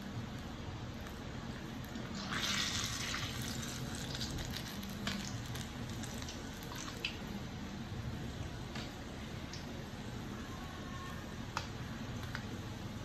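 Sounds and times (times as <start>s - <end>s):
doughnuts sizzling in oil: 0.1s - 7.8s.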